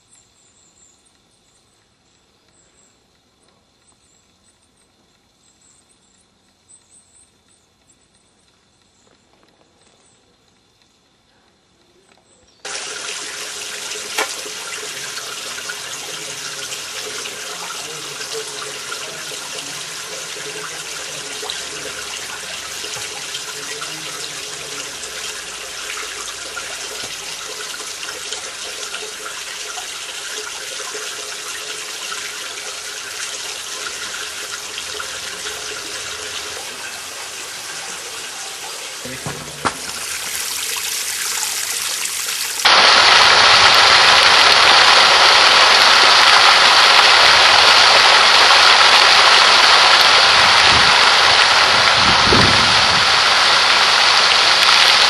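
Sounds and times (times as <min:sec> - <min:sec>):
flowing water rushing: 0:12.7 - 0:55.0.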